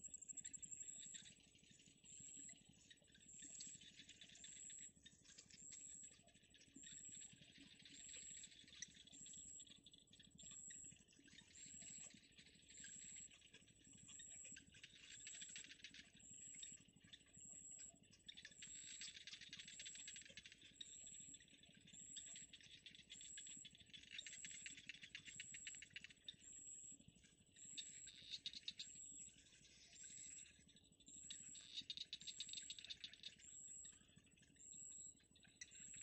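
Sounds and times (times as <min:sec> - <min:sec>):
insect chorus rattling buzz: 0:27.8 - 0:29.0, 0:29.7 - 0:33.5.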